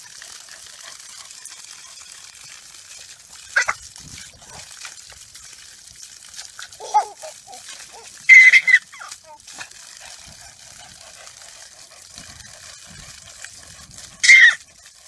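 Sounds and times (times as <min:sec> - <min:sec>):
baby shrieking with laughter: 0:06.8 - 0:09.4, 0:14.2 - 0:14.6.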